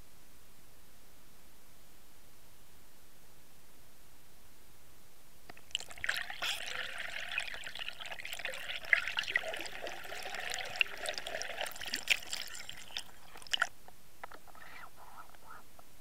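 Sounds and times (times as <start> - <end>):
water splashing and bubbling: 5.5 - 13.8.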